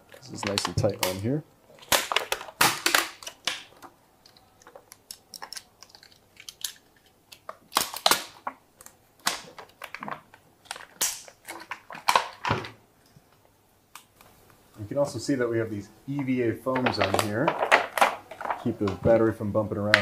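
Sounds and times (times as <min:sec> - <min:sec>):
plastic film crinkling: 0:00.0 - 0:12.5, 0:16.7 - 0:19.1
plastic film ripping: 0:00.2 - 0:03.9, 0:04.5 - 0:12.5.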